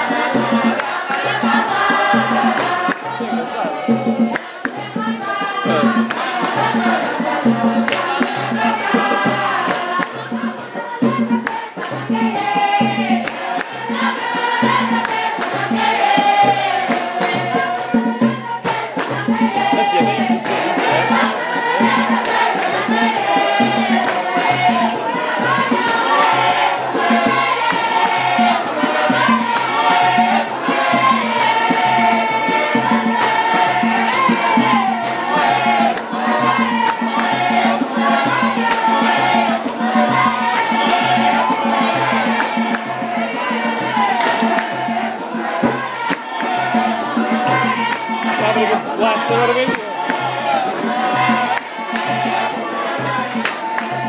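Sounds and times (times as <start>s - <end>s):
choir singing a hymn: 0.0s - 54.0s
percussion beat: 0.0s - 54.0s.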